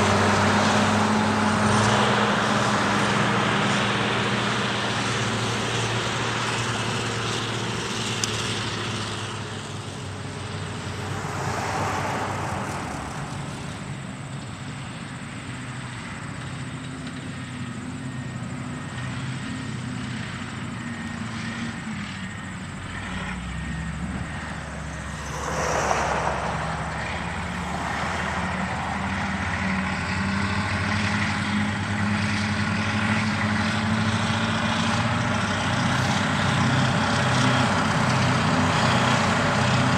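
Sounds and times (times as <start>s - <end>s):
diesel engine low note: 21.8s - 33.7s
rushing noise: 24.4s - 30.2s.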